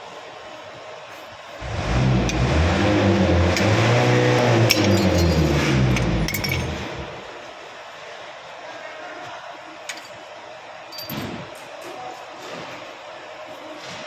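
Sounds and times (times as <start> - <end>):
vehicle engine revving: 1.6 - 7.3.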